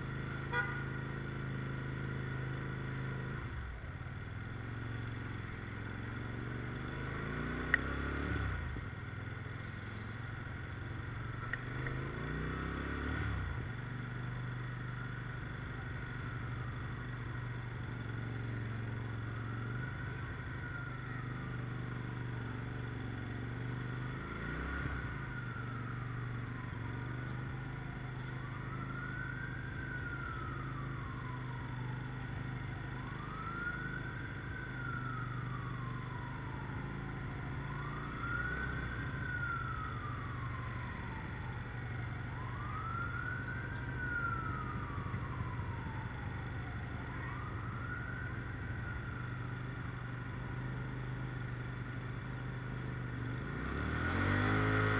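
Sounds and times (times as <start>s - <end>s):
motorcycle engine humming: 0.0s - 24.4s, 25.0s - 53.7s
siren wailing: 18.2s - 23.0s, 23.9s - 51.9s.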